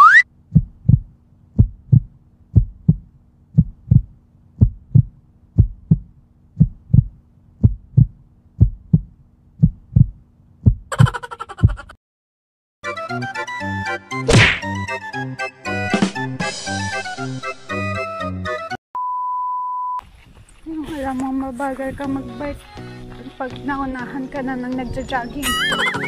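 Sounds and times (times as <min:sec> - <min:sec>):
rising whistle glide: 0:00.0 - 0:00.2
heartbeat double thump: 0:00.5 - 0:11.0.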